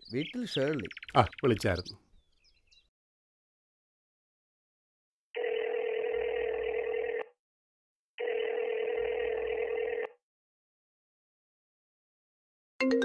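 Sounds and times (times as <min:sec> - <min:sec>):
telephone ringback tone: 0:05.4 - 0:07.4, 0:08.2 - 0:10.2.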